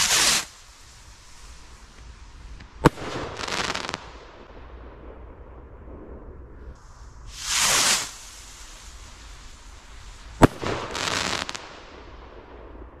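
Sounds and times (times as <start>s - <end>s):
firework rocket launch hiss: 0.0s - 4.4s, 6.6s - 12.6s
firework burst: 0.0s - 13.0s
firework crackling: 0.0s - 13.0s.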